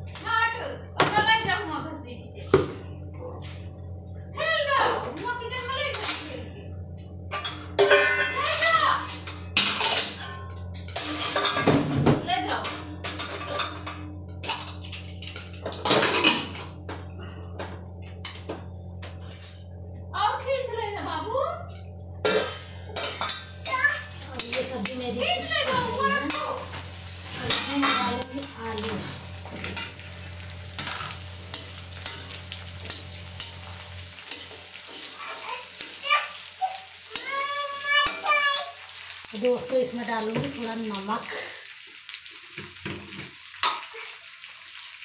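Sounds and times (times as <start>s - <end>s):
steady low hum: 0.0s - 35.9s
vegetables sizzling: 0.0s - 45.0s.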